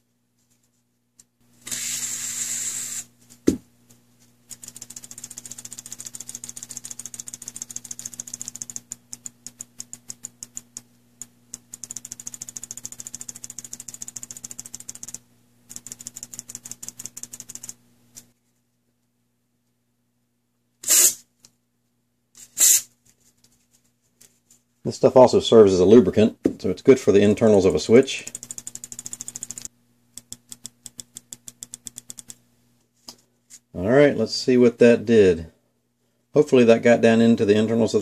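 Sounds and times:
aerosol spray hiss: 1.7s - 3.1s
switch plunger rapid clicking: 4.5s - 17.8s, 28.2s - 32.4s
sharp click: 28.3s - 32.4s.

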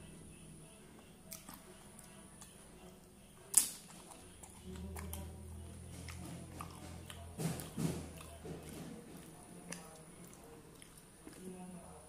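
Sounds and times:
low steady hum: 0.0s - 12.0s
crunching and chewing: 1.0s - 12.0s.

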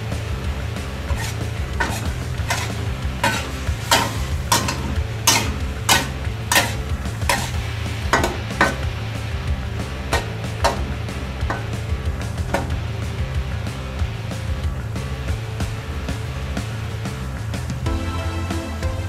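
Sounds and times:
metal spatula scraping a wok: 1.1s - 7.6s.

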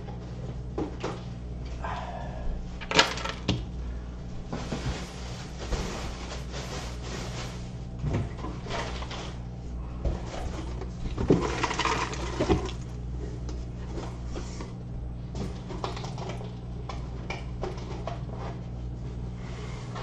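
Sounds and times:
steady low hum: 0.0s - 20.0s
cardboard box rustling and scraping: 4.5s - 7.7s.

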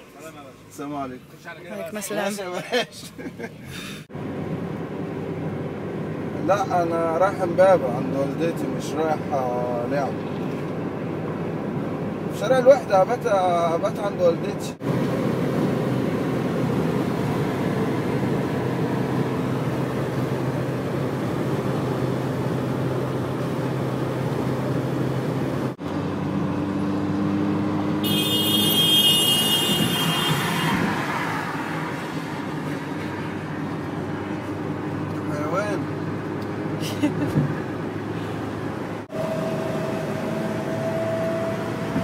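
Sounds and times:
road traffic engines running: 0.0s - 42.0s.

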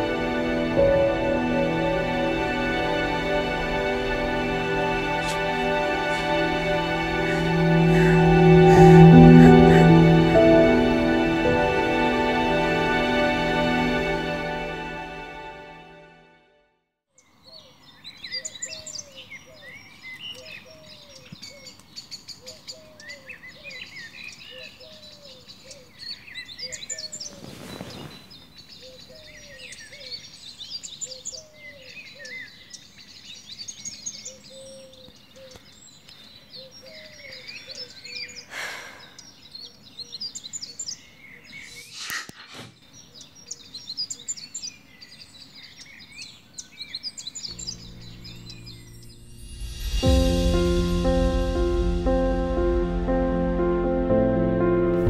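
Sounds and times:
small birds chirping and twittering: 17.2s - 49.2s
brief hissing swells: 41.6s - 42.9s.

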